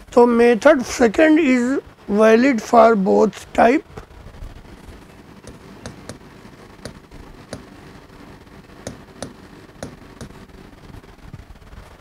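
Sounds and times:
chalk clicking on blackboard: 0:05.5 - 0:06.2, 0:06.8 - 0:07.7, 0:08.8 - 0:10.4.

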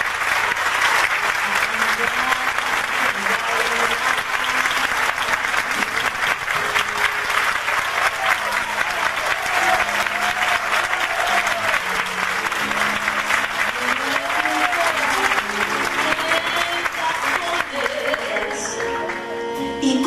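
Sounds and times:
audience applauding: 0:00.0 - 0:19.5
band playing soft instrumental: 0:08.6 - 0:20.0.

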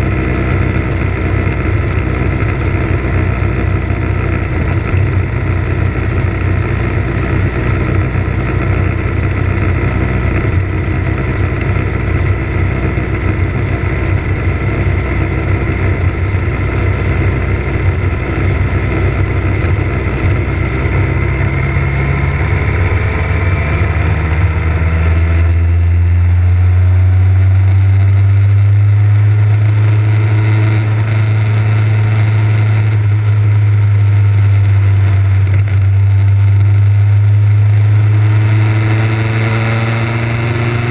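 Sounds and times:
motorcycle engine running: 0:00.0 - 0:40.9
steady rushing noise: 0:00.0 - 0:40.9.

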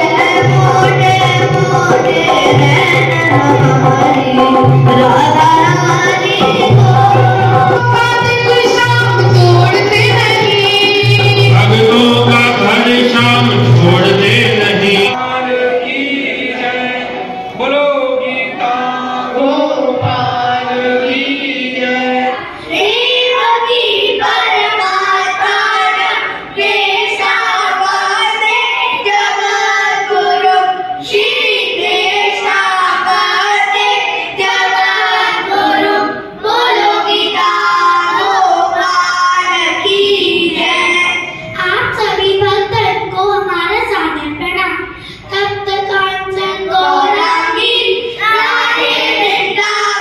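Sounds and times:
children singing a chant: 0:00.0 - 0:14.2, 0:14.9 - 0:50.0
dholak drum: 0:00.0 - 0:15.2
man singing: 0:11.2 - 0:16.4.

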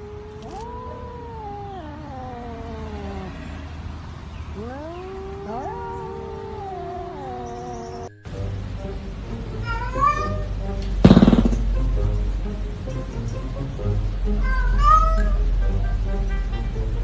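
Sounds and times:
cats yowling: 0:00.0 - 0:08.2, 0:09.6 - 0:10.5, 0:14.4 - 0:15.5.

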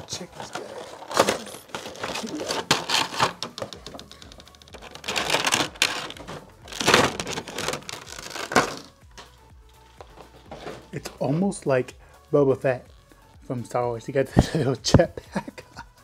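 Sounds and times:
plastic packaging crinkling: 0:00.0 - 0:09.0.

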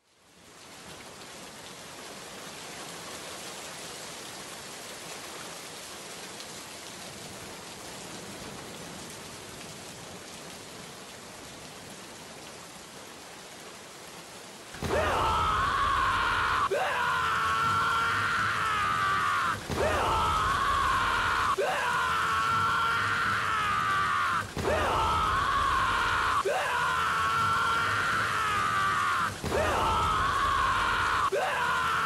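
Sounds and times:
steady rain: 0:00.0 - 0:32.0
person screaming: 0:14.8 - 0:32.0.

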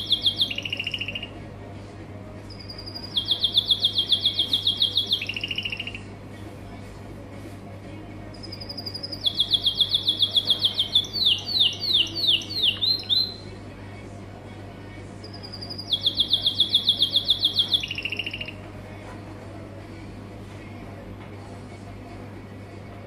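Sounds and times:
canary singing rapid trills: 0:00.0 - 0:01.4, 0:02.5 - 0:06.1, 0:08.4 - 0:13.6, 0:15.2 - 0:18.6.

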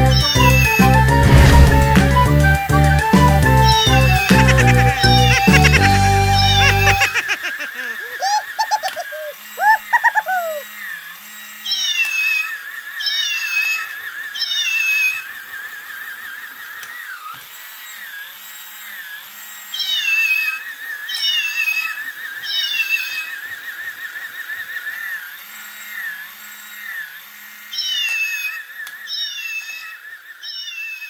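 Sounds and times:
toy gear motor whine: 0:00.0 - 0:01.0, 0:03.6 - 0:31.0
electronic meows: 0:03.7 - 0:10.7, 0:29.1 - 0:31.0
quick chirps: 0:06.4 - 0:10.6.

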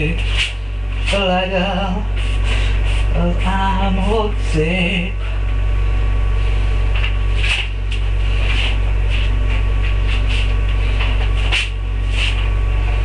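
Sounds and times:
electrical hum: 0:00.0 - 0:13.0
rustles and scrapes: 0:07.0 - 0:12.6.

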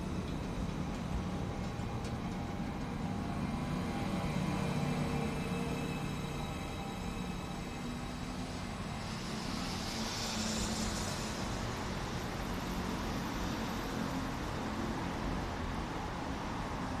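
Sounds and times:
train equipment low hum: 0:00.0 - 0:10.1.

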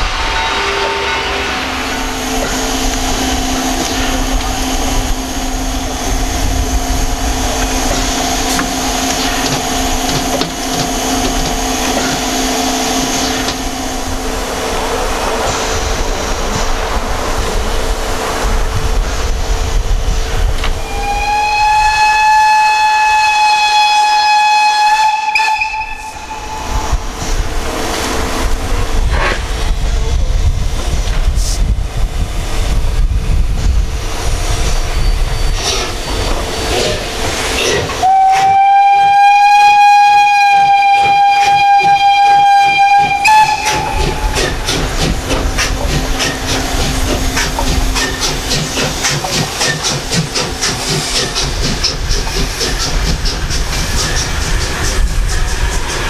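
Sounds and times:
steam hissing: 0:00.0 - 0:56.0
steam whistle: 0:20.8 - 0:27.1, 0:38.0 - 0:44.7.

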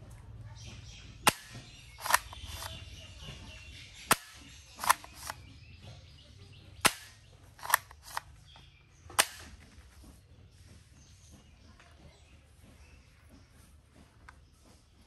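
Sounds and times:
toy shotgun plastic snaps: 0:01.3 - 0:02.8, 0:04.1 - 0:05.4, 0:06.8 - 0:08.3, 0:09.1 - 0:09.6.

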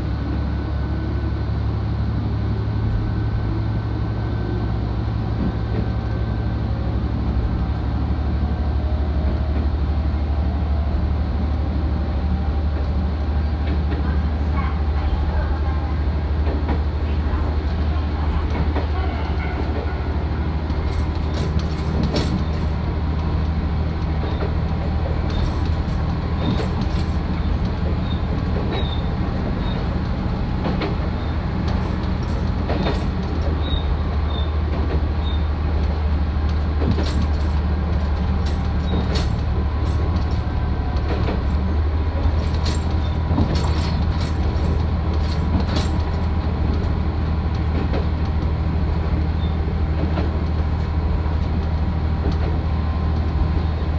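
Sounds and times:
diesel engine hum: 0:00.0 - 0:53.9
wheels knocking on track: 0:20.7 - 0:50.8.

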